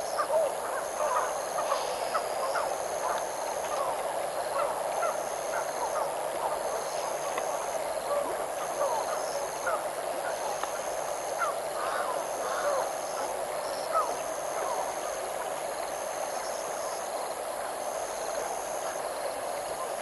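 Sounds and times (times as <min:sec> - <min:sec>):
chorus of bird calls: 0:00.0 - 0:17.0.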